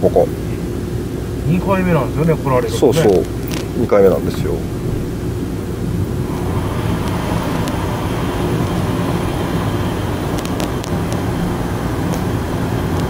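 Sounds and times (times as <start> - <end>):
car engine and road rumble: 0.0 - 13.0
faint clicks: 10.3 - 11.3.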